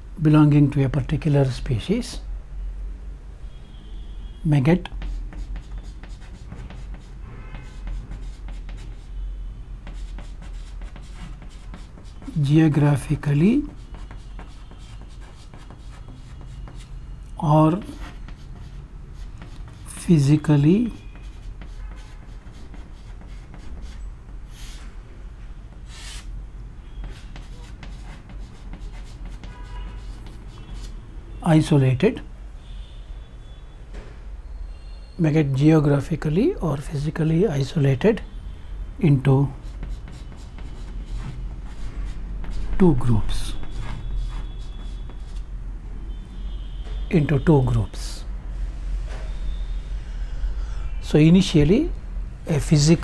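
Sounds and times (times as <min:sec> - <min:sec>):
chalk scratching on a chalkboard: 0:04.7 - 0:24.9, 0:25.7 - 0:26.3, 0:26.9 - 0:31.0, 0:39.4 - 0:45.5.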